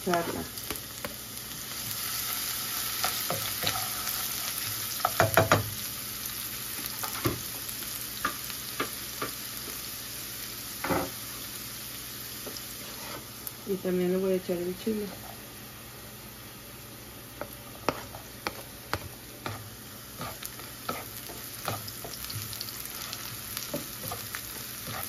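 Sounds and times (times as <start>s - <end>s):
onion sizzling in oil: 0.0s - 25.0s
spatula knocking skillet: 4.6s - 5.7s, 8.2s - 9.4s, 17.4s - 25.0s.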